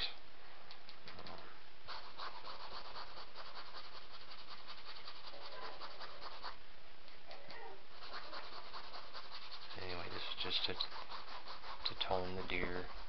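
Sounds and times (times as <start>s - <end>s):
brush scrubbing on canvas: 1.9s - 6.6s, 8.0s - 13.0s.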